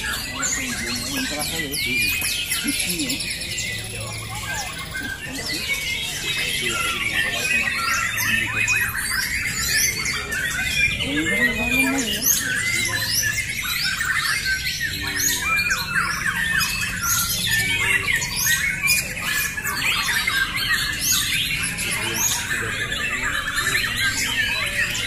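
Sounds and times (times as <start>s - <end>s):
many songbirds whistling: 0.0s - 25.0s.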